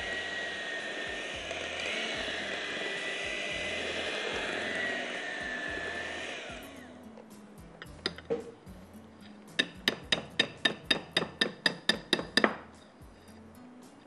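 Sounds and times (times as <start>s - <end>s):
utensil tapping mixing bowl: 9.5s - 12.7s.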